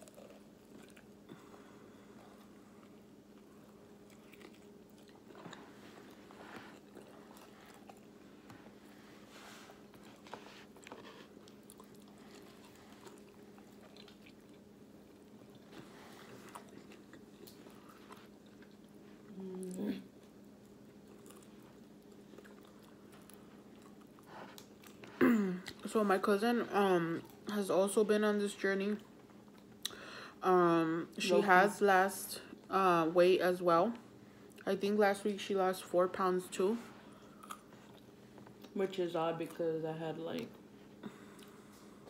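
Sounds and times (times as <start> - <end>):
close-up chewing: 0.0 - 25.9, 37.0 - 38.8
person humming: 19.3 - 20.0.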